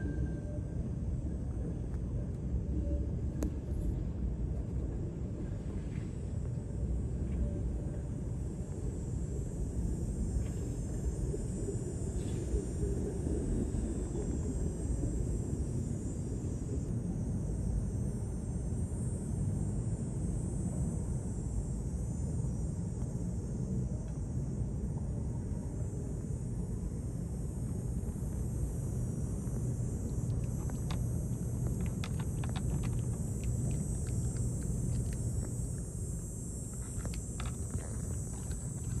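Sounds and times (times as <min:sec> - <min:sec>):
low outdoor rumble: 0:00.0 - 0:39.0
cat crunching dry treats: 0:31.7 - 0:35.2.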